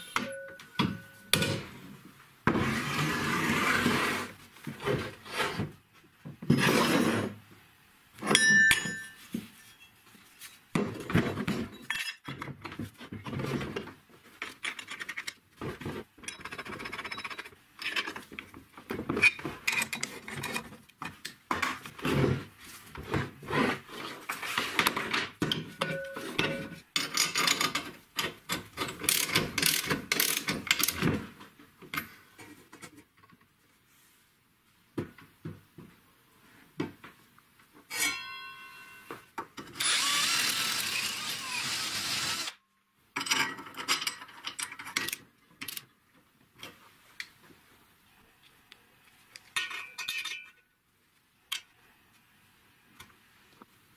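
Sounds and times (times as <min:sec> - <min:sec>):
metal scraping on metal and wood: 0:02.5 - 0:05.8, 0:06.5 - 0:07.4, 0:37.9 - 0:42.5.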